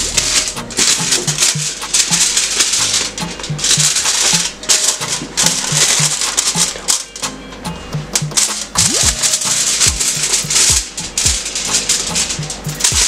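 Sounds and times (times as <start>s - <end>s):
short bass notes: 0.0s - 2.3s
shaker: 0.0s - 13.0s.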